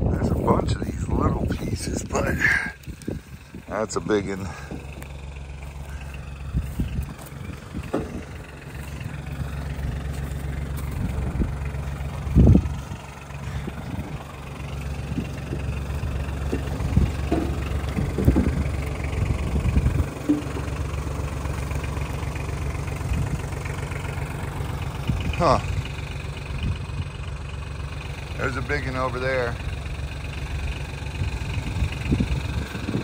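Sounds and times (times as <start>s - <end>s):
vehicle engine idling: 0.0s - 33.0s
short thumps: 6.9s - 9.2s, 15.1s - 20.9s.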